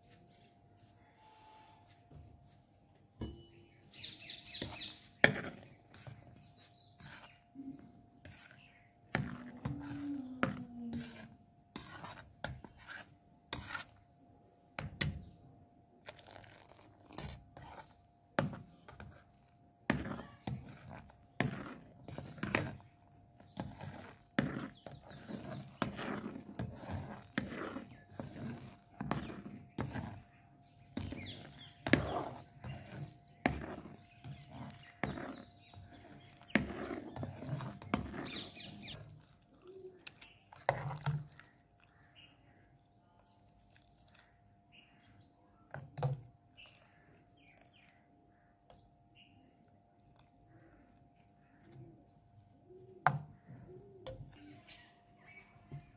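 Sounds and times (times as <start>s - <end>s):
spoon scraping metal pot: 3.2s - 14.1s, 16.0s - 19.3s, 19.9s - 39.4s, 40.0s - 41.6s.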